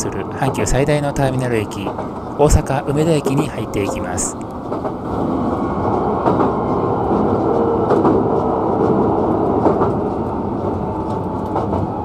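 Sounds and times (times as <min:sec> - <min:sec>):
electric train rolling rumble: 0:00.0 - 0:12.0.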